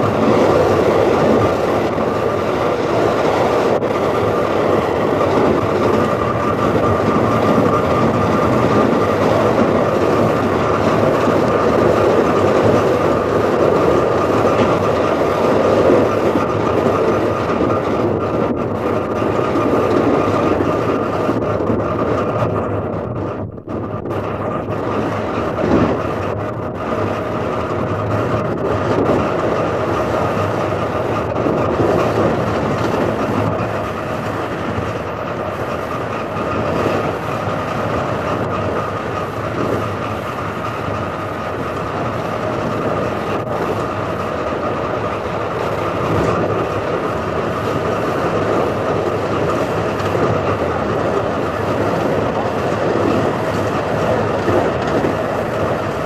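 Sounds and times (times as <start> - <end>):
electric train running with whine: 0.0 - 56.0
train wheels clicking: 0.0 - 56.0.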